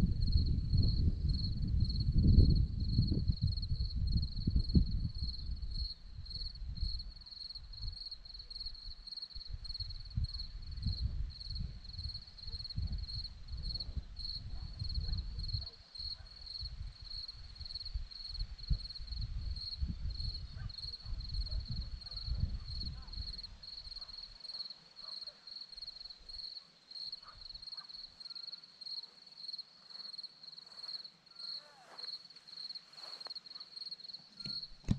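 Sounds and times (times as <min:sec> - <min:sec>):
wind rumbling on microphone: 0:00.0 - 0:24.1, 0:34.4 - 0:34.9
crickets chirping: 0:00.0 - 0:34.9.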